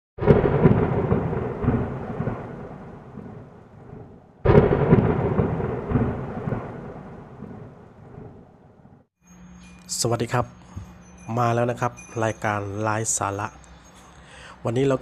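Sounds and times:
thunder crack and rumble: 0.2s - 9.1s.

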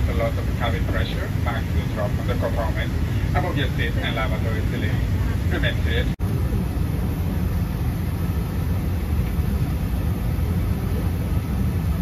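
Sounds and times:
aircraft cabin engine rumble: 0.0s - 12.0s.

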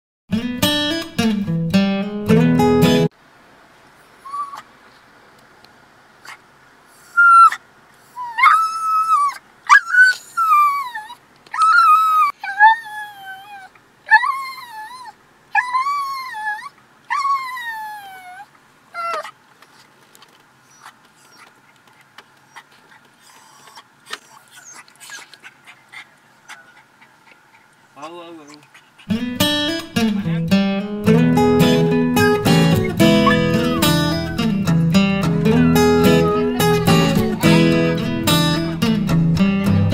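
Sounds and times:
dog whining: 4.2s - 4.7s, 7.0s - 19.4s, 20.6s - 21.6s, 22.4s - 27.7s, 32.2s - 34.6s, 35.4s - 38.7s.

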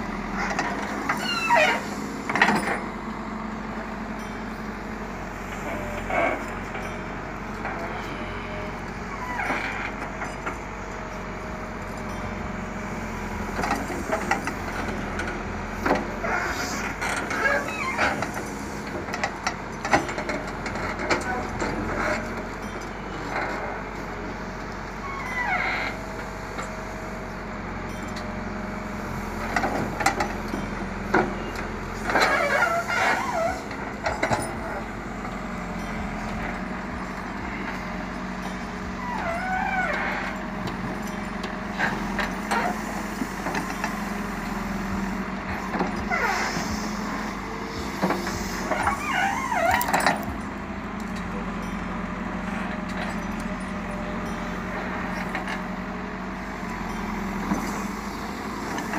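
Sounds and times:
diesel engine running under load: 0.0s - 58.9s
high squeals: 0.9s - 2.2s, 31.4s - 33.7s, 46.0s - 50.4s.

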